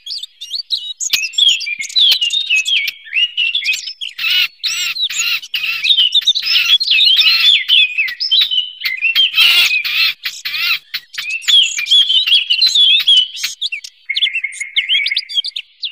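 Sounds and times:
bird singing warble: 0.0s - 15.9s.

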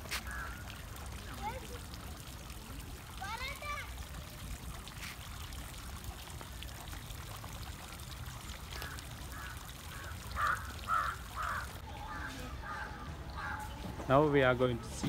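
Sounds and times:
fountain trickling water: 0.0s - 15.0s
crow cawing: 0.2s - 0.7s, 8.8s - 13.8s.

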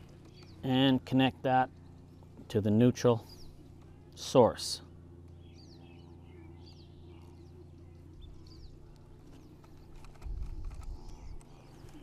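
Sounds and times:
low background hum: 0.0s - 12.0s
faint bird chirps: 5.3s - 10.0s.

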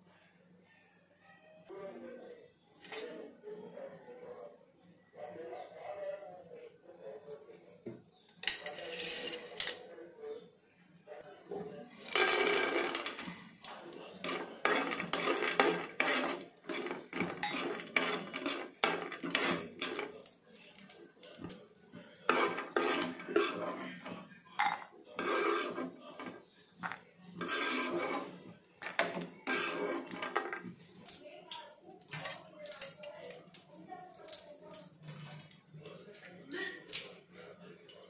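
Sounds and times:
metal spoon scraping pan: 8.4s - 9.8s, 12.0s - 31.2s
peanuts rattling into pan: 12.1s - 13.3s.

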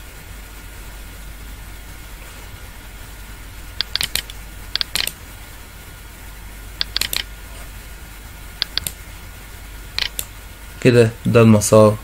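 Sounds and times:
faint steady hum: 0.0s - 12.0s
computer mouse clicks: 3.8s - 5.2s, 6.8s - 7.3s, 8.6s - 9.0s, 10.0s - 10.3s.

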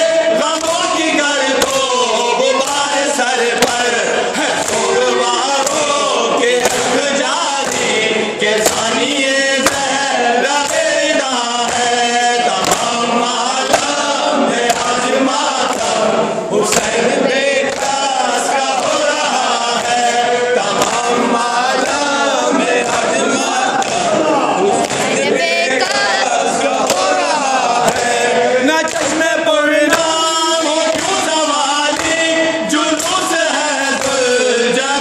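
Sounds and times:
group of men singing along: 0.0s - 35.0s
hands striking chests rhythmically: 0.0s - 35.0s
man singing into a microphone: 28.6s - 35.0s.

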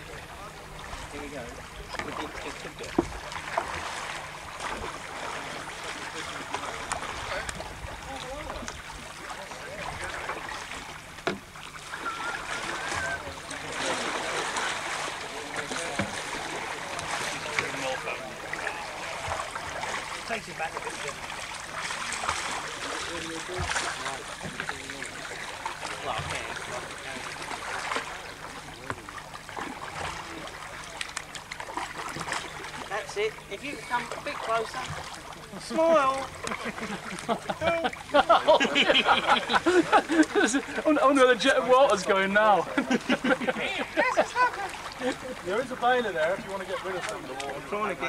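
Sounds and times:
paddles splashing in water: 0.0s - 48.0s
faint voices: 11.9s - 31.2s.

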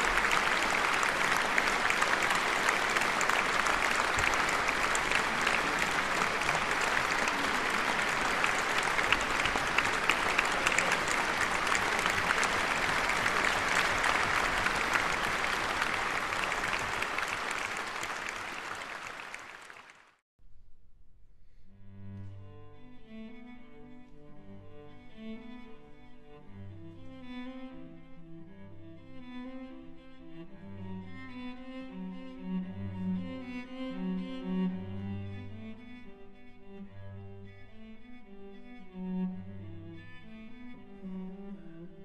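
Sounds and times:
audience applauding: 0.0s - 20.2s.

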